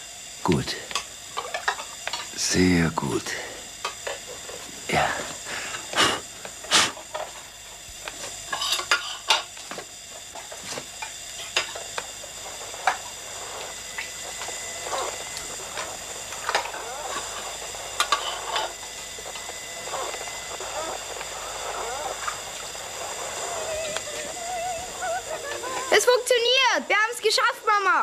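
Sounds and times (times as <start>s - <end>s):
steady high hiss: 0.0s - 28.0s
radio clicks and crackles: 9.7s - 26.1s.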